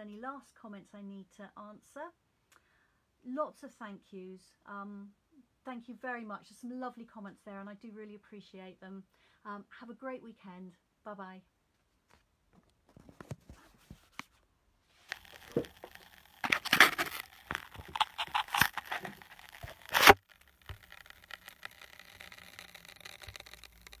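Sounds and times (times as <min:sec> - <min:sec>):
rustling and scraping on microphone: 0:11.8 - 0:24.0.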